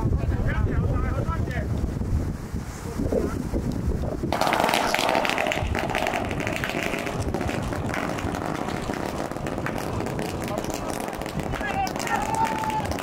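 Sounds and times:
firecrackers popping: 4.3s - 13.0s.

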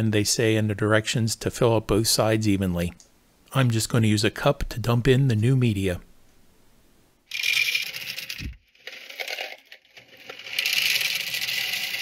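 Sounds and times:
hard beads rattling into canister: 7.3s - 12.0s.

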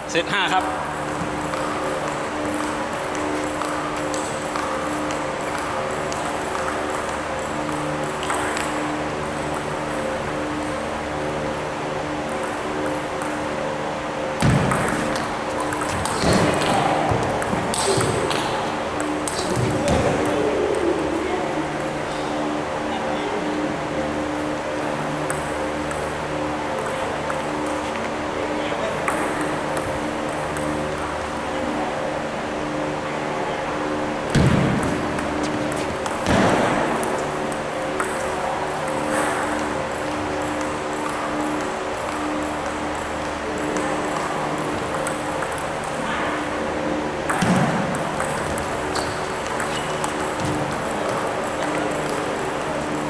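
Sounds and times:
steady hum: 0.0s - 53.0s
table tennis ball clicking: 14.5s - 20.3s, 47.3s - 52.4s.

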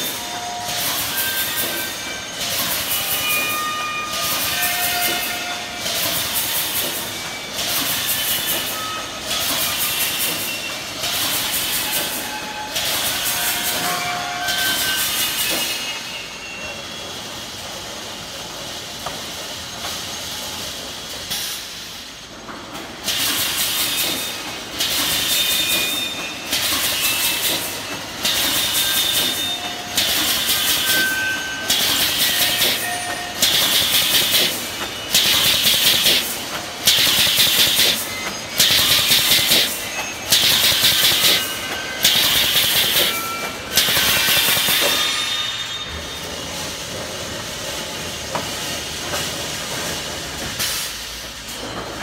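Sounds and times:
welding machine hiss and clatter: 0.0s - 52.0s
steady machine noise: 23.0s - 51.9s.

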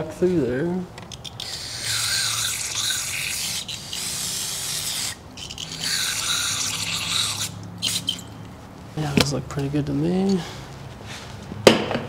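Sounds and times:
aerosol can hissing: 1.4s - 8.2s.

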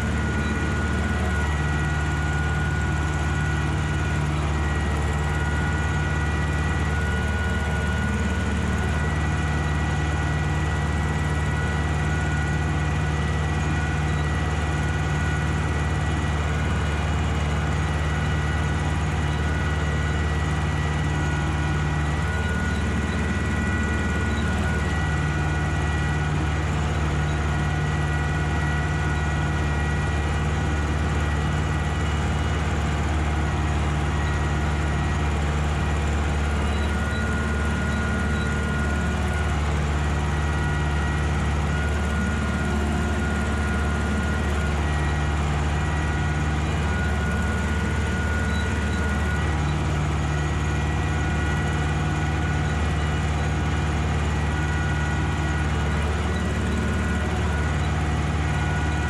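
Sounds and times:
tractor diesel engine running: 0.0s - 59.0s
thin steady whine: 16.3s - 59.0s.

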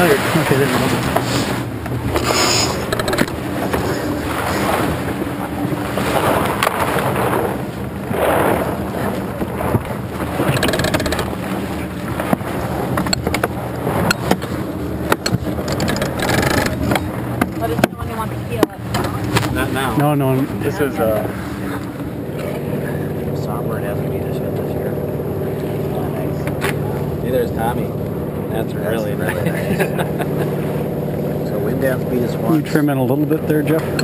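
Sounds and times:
water rushing along a hull: 0.0s - 34.0s
rigging clicks and knocks: 2.8s - 3.9s, 10.4s - 11.5s, 12.3s - 18.0s, 18.6s - 19.6s.

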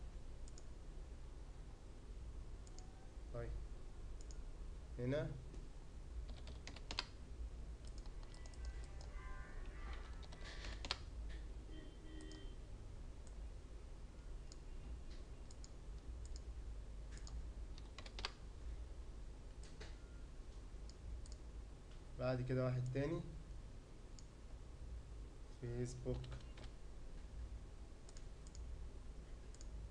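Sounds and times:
low steady hum: 0.0s - 29.9s
keyboard and mouse clicks: 0.4s - 0.7s, 2.6s - 2.9s, 6.3s - 7.1s, 7.8s - 11.4s, 14.5s - 16.5s, 17.1s - 18.4s, 19.5s - 20.0s, 20.8s - 21.4s, 26.1s - 26.8s, 28.0s - 28.7s, 29.5s - 29.8s.

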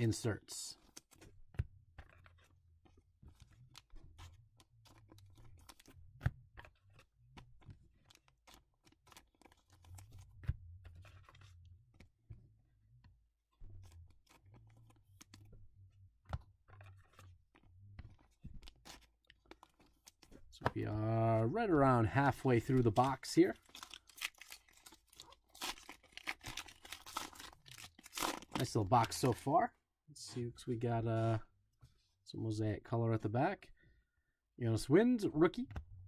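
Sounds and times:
trading cards rustling: 0.1s - 12.5s, 13.6s - 29.6s.

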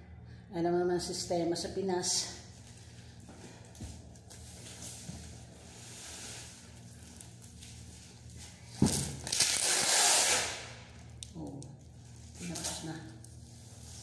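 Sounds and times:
packing tape tearing off roll: 8.6s - 11.2s.

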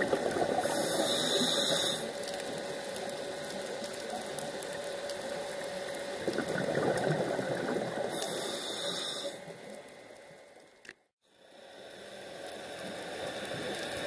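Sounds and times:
regulator bubbles rushing: 0.0s - 0.6s, 6.2s - 8.1s
underwater hum: 0.0s - 10.8s, 11.4s - 14.0s.

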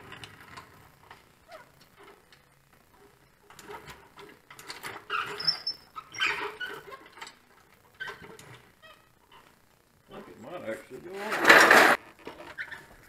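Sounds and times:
creaks squeaks and clanks: 0.0s - 13.0s
floor jack pumping: 11.1s - 12.0s.

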